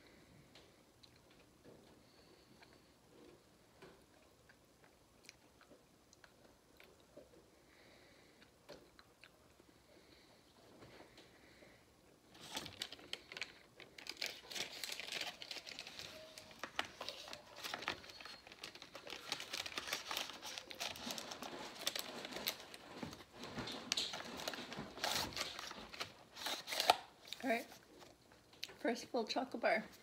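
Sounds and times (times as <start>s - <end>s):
wrapper crinkling: 12.3s - 28.2s.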